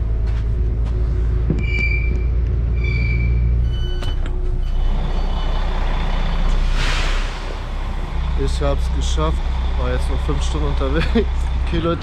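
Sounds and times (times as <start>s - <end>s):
train low rumble: 0.0s - 12.0s
train door warning beeps: 1.6s - 5.6s
loud hiss: 6.6s - 7.6s.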